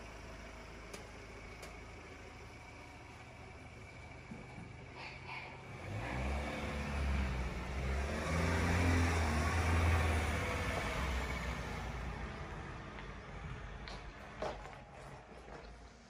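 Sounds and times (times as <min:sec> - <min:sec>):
pickup engine accelerating: 0:05.5 - 0:14.0.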